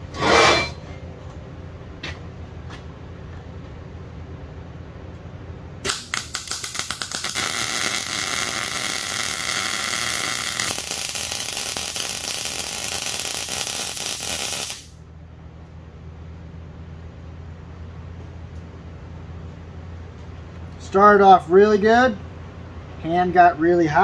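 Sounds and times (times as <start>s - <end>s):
mig welder frying hiss: 5.8s - 15.0s.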